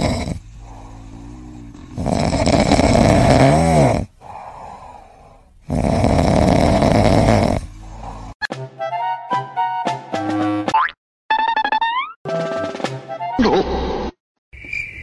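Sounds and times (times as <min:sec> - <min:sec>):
cat breathing: 0:00.0 - 0:03.2, 0:04.0 - 0:08.4
cat snoring: 0:00.0 - 0:08.4.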